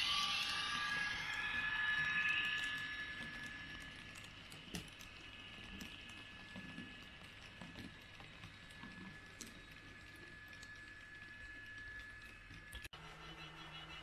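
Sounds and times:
thin high tone: 0.0 - 5.6.

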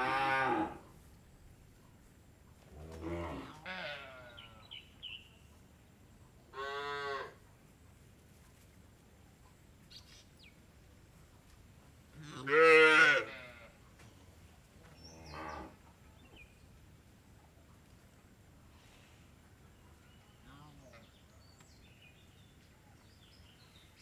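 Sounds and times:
cows mooing: 0.0 - 0.8, 12.2 - 13.7.

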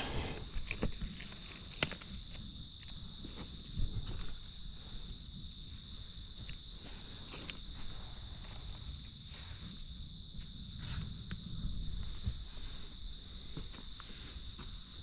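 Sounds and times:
high-pitched insect chorus: 0.0 - 15.0.

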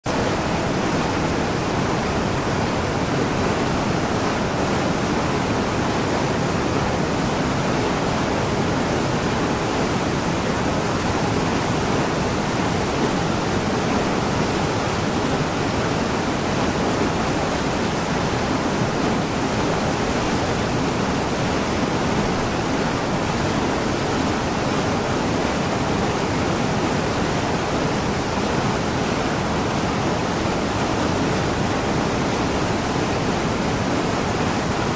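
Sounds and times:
stream rushing over boulders: 0.0 - 34.9.

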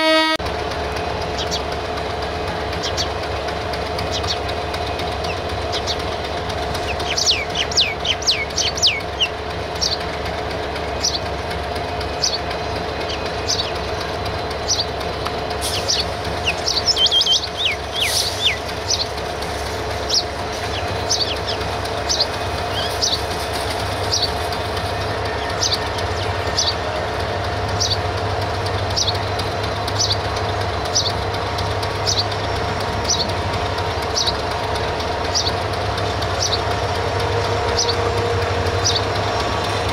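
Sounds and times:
diesel locomotive idling: 0.0 - 39.9
small bird chirping: 6.8 - 10.0, 12.1 - 13.8, 15.7 - 24.5.

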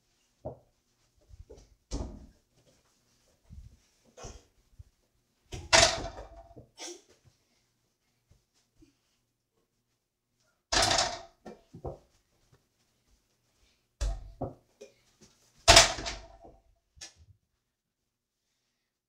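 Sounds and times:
ball banging against backboard: 5.6 - 6.4.

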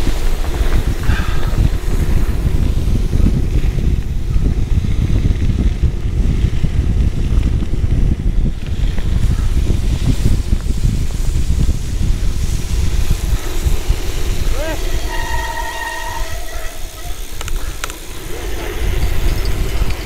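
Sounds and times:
tyres on gravel road: 0.0 - 20.0
wind buffeting microphone: 0.0 - 20.0.

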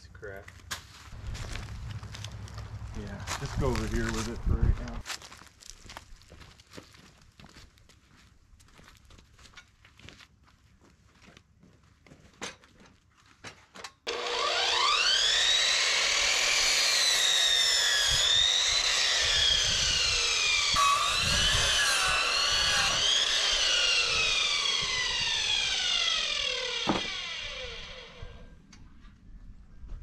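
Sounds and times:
power tool motor: 14.1 - 28.5.

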